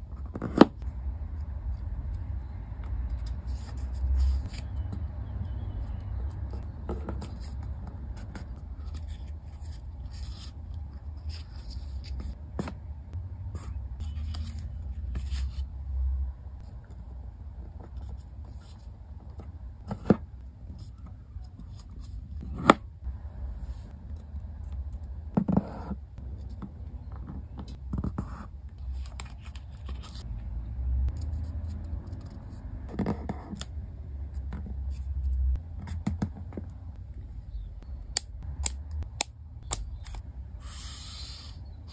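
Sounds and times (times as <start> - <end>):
paper rustling and scraping: 3.1 - 5.0, 6.9 - 12.4, 13.6 - 15.7, 28.8 - 30.3, 40.6 - 41.7.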